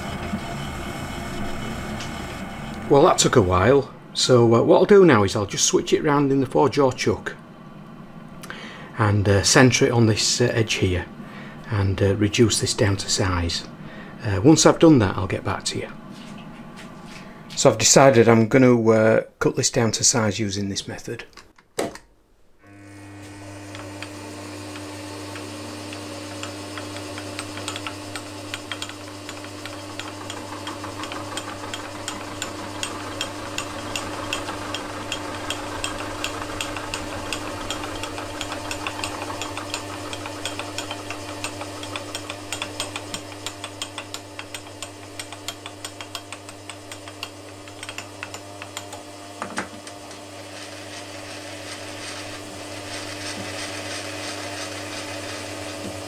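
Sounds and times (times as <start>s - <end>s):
milling machine motor hum: 0.0s - 4.5s, 22.6s - 56.0s
milling cutter ticking: 23.4s - 49.2s.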